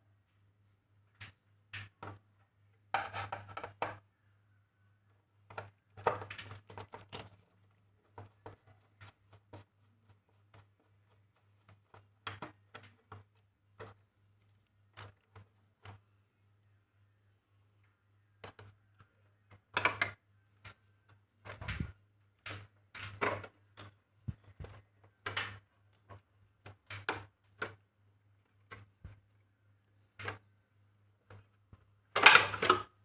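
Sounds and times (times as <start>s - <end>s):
faint low hum: 0.0s - 33.0s
metal rod tapping and scraping: 2.9s - 4.0s.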